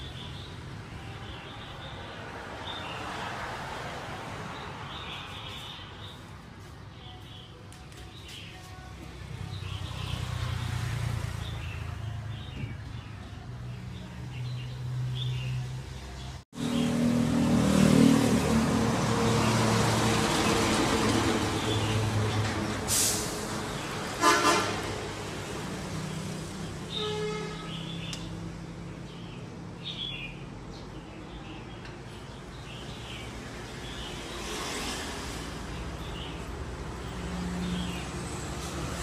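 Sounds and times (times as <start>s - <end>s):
motor vehicle passing: 16.6s - 24.2s
car horn honk: 24.2s - 24.9s, 27.0s - 27.8s.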